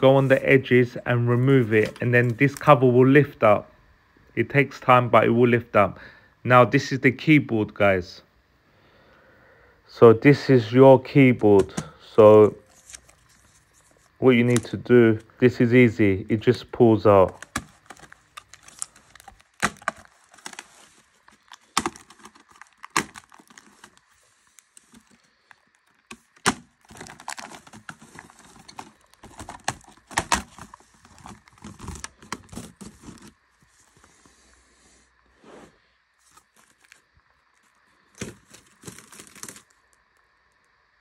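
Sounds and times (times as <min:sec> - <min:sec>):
plastic cracking and snapping: 0:17.2 - 0:33.3, 0:37.6 - 0:39.8.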